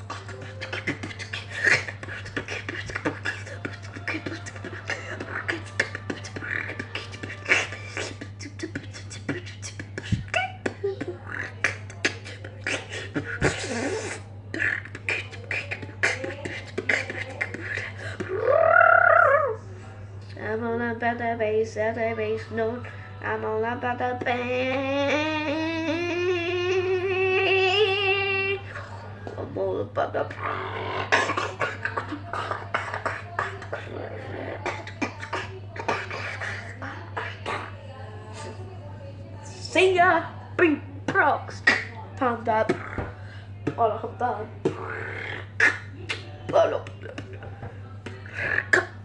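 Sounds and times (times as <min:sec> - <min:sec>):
person beatboxing: 0:00.0 - 0:19.4, 0:30.3 - 0:37.7, 0:41.1 - 0:41.9, 0:42.6 - 0:43.8, 0:44.6 - 0:49.0
steady low hum: 0:00.0 - 0:49.0.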